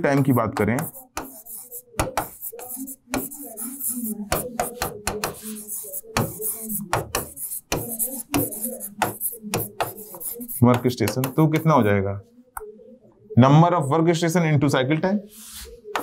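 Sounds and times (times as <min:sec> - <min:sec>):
pen tapping and scratching on screen: 0:00.0 - 0:11.9.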